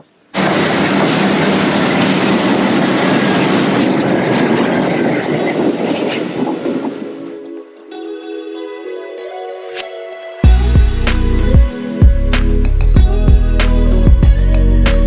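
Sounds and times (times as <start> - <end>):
low hum: 0.0 - 7.5
train wheels rattling on track: 0.0 - 7.9.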